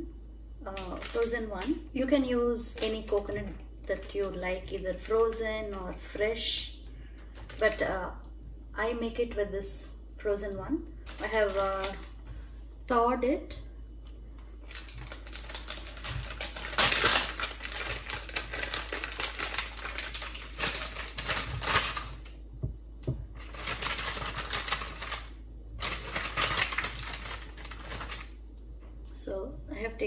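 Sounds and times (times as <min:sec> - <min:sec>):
plastic packet crinkling: 0:00.6 - 0:01.8, 0:02.6 - 0:07.9, 0:11.0 - 0:12.2, 0:14.6 - 0:22.4, 0:23.4 - 0:28.4.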